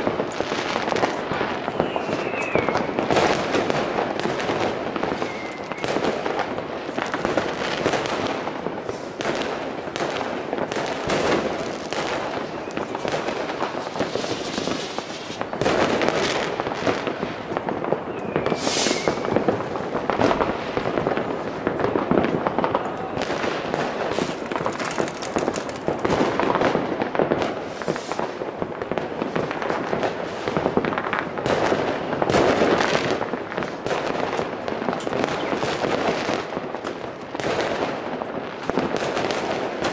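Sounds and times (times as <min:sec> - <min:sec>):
fireworks bangs and crackling: 0:00.0 - 0:39.9
shrill firework whistle: 0:01.6 - 0:03.3, 0:05.0 - 0:06.4, 0:18.0 - 0:19.5.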